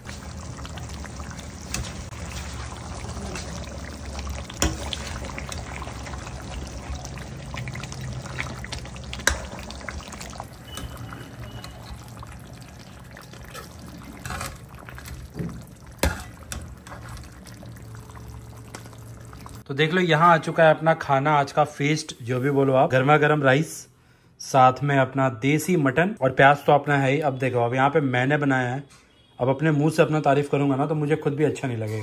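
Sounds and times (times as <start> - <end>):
curry bubbling in a pan: 0.0 - 19.6.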